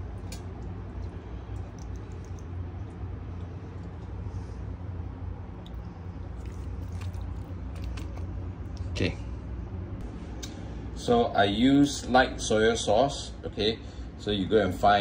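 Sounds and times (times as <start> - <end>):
steady low hum: 0.0 - 15.0
wet squishing of raw chicken: 5.6 - 8.5.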